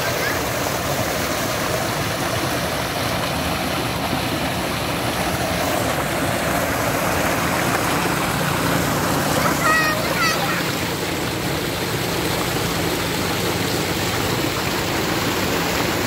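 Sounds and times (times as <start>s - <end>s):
water gushing into a tank: 0.0s - 16.0s.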